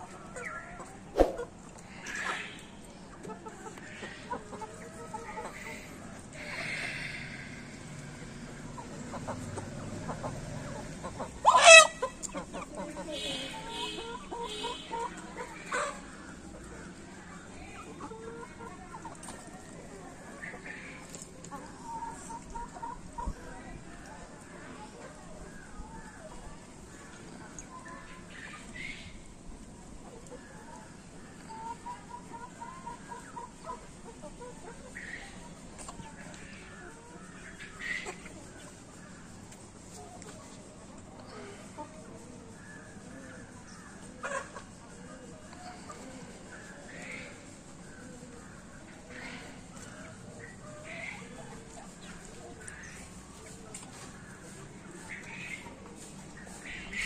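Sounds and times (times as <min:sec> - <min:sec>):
chickens clucking: 0:00.0 - 0:57.0
chicken squawk: 0:00.4 - 0:07.8, 0:08.7 - 0:16.1, 0:43.9 - 0:44.8.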